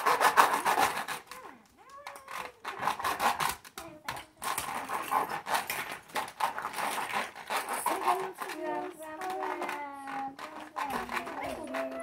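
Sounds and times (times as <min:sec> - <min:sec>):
plastic toys clattering: 0:00.0 - 0:12.0
young child's voice: 0:01.2 - 0:03.0, 0:03.8 - 0:05.0, 0:07.8 - 0:12.0.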